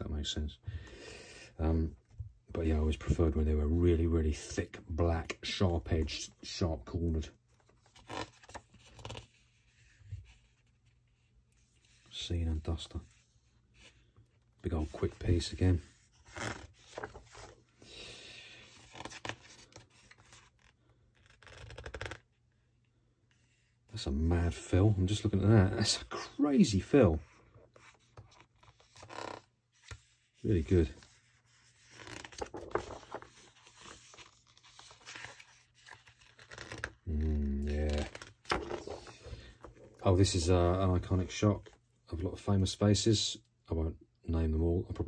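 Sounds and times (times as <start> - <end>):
book pages turning: 5.2 - 17.8, 18.5 - 22.4, 27.2 - 41.8.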